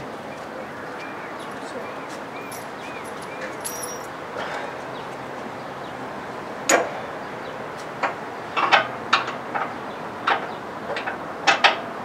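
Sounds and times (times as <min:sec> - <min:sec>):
outdoor background noise: 0:00.0 - 0:12.0
metallic clink: 0:02.4 - 0:04.1.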